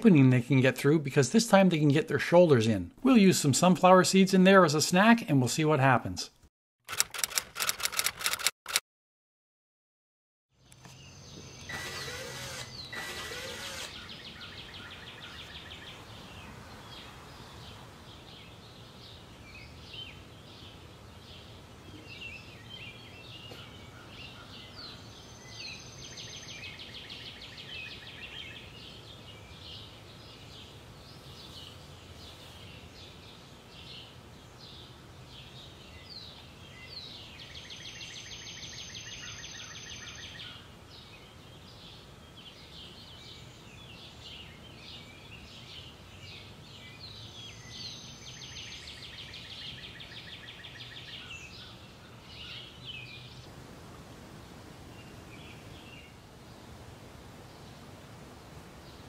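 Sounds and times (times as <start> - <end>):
small birds chirping: 10.6 - 53.5
rapid bird trills: 11.5 - 15.7.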